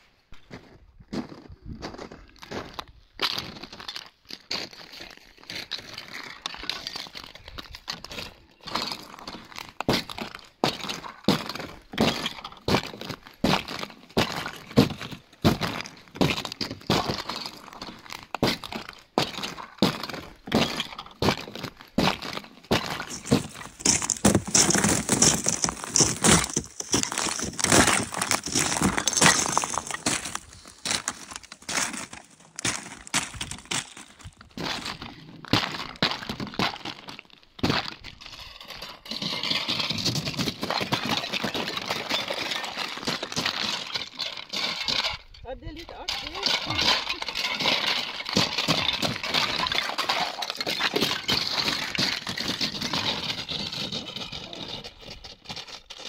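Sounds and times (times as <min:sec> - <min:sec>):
thin ice cracking underfoot: 0:02.0 - 0:56.0
ice shards clinking: 0:22.8 - 0:34.1, 0:46.0 - 0:54.8.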